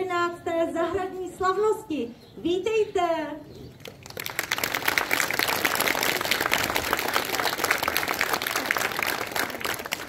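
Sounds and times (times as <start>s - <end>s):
audience clapping: 3.8s - 10.0s.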